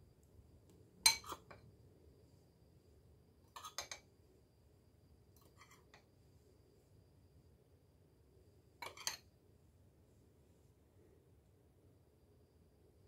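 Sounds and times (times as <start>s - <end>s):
metal spoon clinking on bowl: 1.0s - 1.6s, 3.5s - 4.1s, 8.8s - 9.3s.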